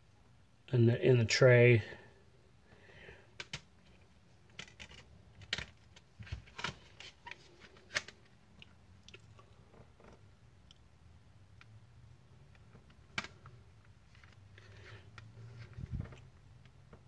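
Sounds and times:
plastic case clicking and clacking: 3.4 - 3.7, 4.5 - 7.1.

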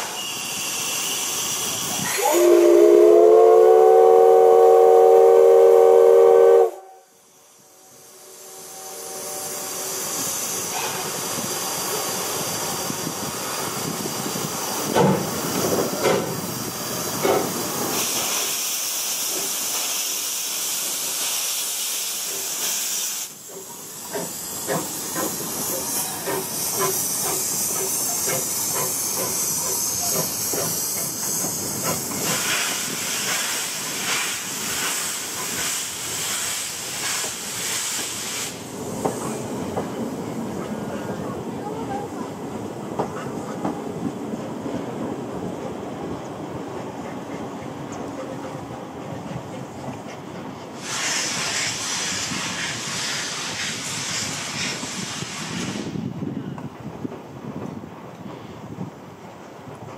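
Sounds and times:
steam locomotive whistle: 0.0 - 9.8
hissing steam and exhaust: 0.0 - 59.9.

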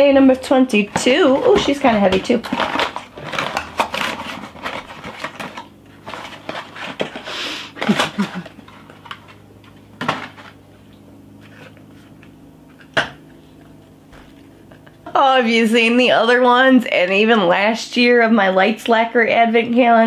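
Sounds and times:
cardboard box rustling: 0.8 - 7.2
breathy exhale: 7.2 - 7.8.

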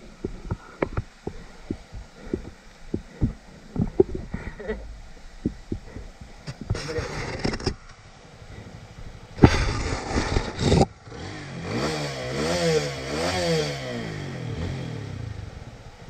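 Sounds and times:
motorcycle engine revving: 9.4 - 16.0.

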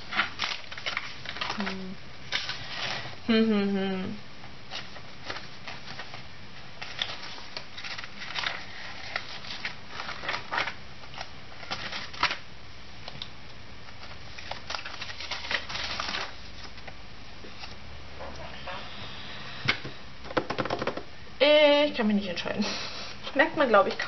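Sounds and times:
paper rustling: 0.0 - 3.2, 4.7 - 12.4, 13.9 - 17.8.

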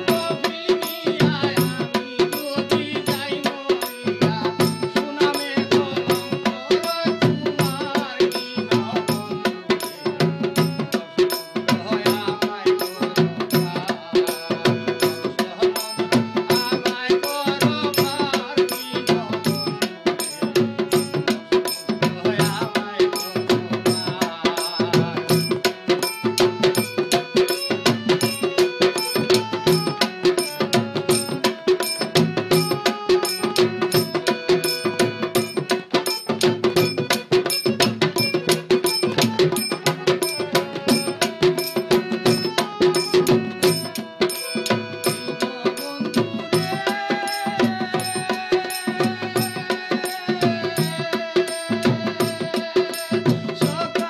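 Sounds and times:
fast percussion: 0.0 - 54.0.

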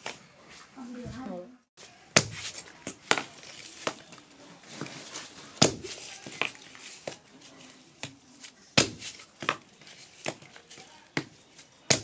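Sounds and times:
cardboard tubes knocking on concrete: 5.6 - 7.2, 8.8 - 12.0.

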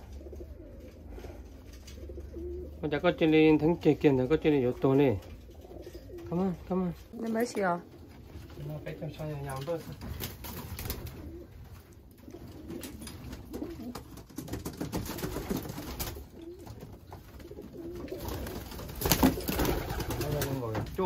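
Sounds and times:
pigeons cooing: 0.0 - 9.2, 10.6 - 14.6, 15.3 - 20.6.

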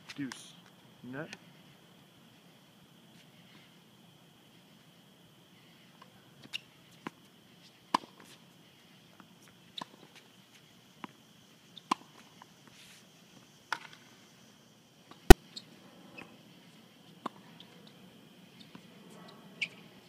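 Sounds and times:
faint high-pitched hum: 0.0 - 20.0
tennis ball hits and bounces: 7.9 - 8.3, 11.9 - 12.2, 13.7 - 14.0.

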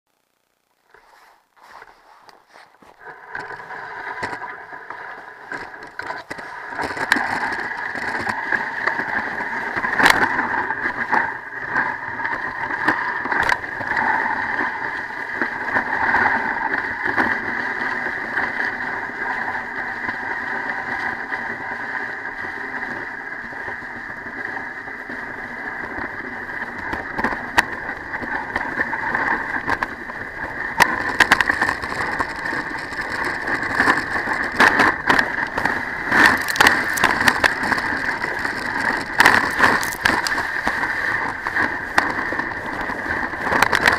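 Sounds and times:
sled runners scraping snow: 0.9 - 43.9
sled knocking on bumps: 5.4 - 11.3, 25.8 - 43.9.

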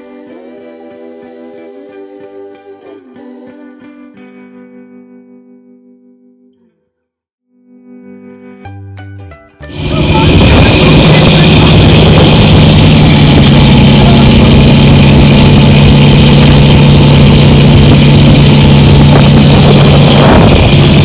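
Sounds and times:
diesel engine droning: 9.7 - 21.0.

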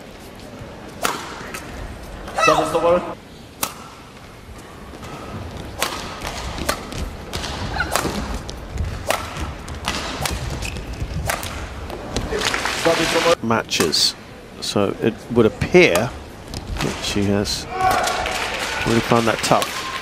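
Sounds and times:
low hum of arena: 0.0 - 20.0
rackets hitting shuttlecock: 1.0 - 1.7, 3.5 - 4.2, 5.7 - 11.8.

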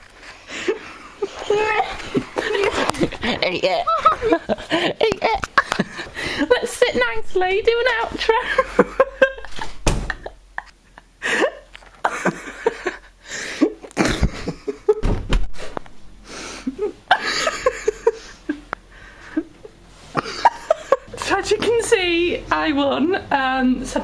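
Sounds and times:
breathless laughter and gasps: 4.6 - 6.6.

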